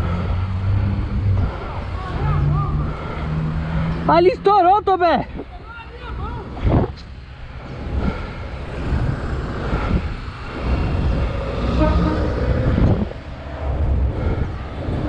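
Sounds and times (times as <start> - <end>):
street noise: 0.0 - 15.0
wind rumble on microphone: 5.2 - 15.0.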